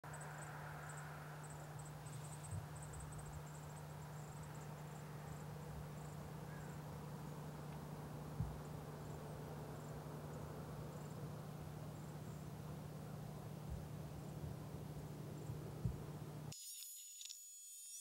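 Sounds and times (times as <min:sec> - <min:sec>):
low hum and hiss: 0:00.1 - 0:16.6.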